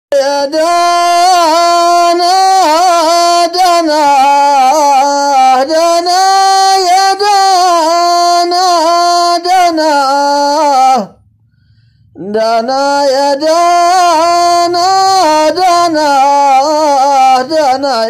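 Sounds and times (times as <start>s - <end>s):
person singing unaccompanied: 0.1s - 11.2s, 11.8s - 18.0s
breaths between phrases: 11.2s - 12.2s.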